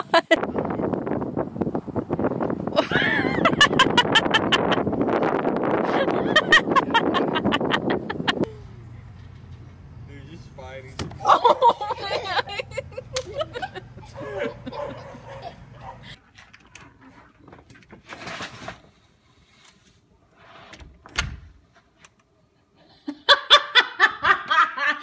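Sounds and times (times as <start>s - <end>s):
people talking: 10.1s - 15.0s.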